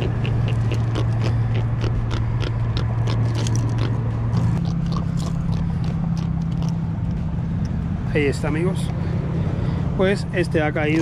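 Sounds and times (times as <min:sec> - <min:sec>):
clicking and scraping on lure: 0:00.0 - 0:07.2.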